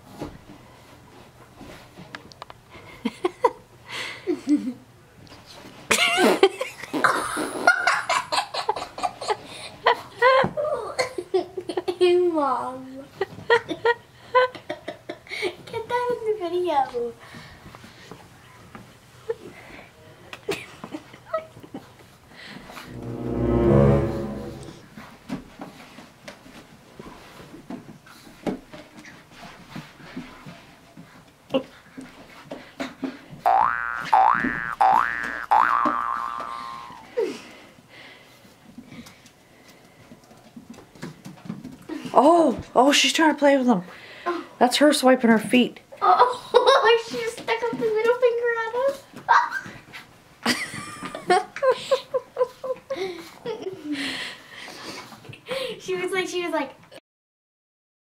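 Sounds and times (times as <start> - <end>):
low horn-like tone: 22.9 - 24.9.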